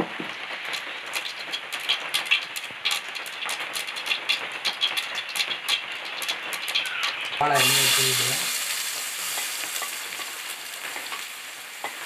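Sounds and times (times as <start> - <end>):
faint oil sizzle: 0.0 - 12.0
mustard seeds popping in oil: 0.0 - 12.0.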